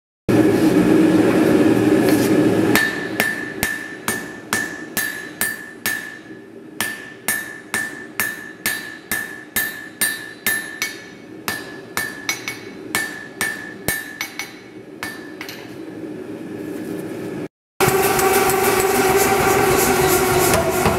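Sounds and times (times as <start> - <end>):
gas forge roaring: 0.3 - 3.9, 17.8 - 20.9
hammer striking metal on anvil: 2.7 - 15.9, 17.8 - 20.9.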